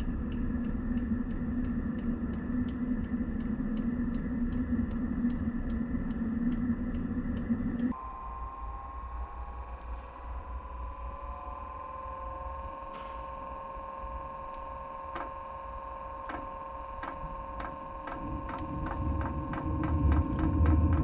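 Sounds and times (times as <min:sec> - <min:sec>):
blower motor whining: 0:08.0 - 0:21.0
burner low rumble: 0:17.8 - 0:21.0.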